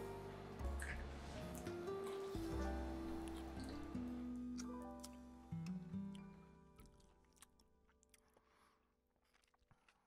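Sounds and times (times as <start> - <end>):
slow sustained background music: 0.0 - 7.8.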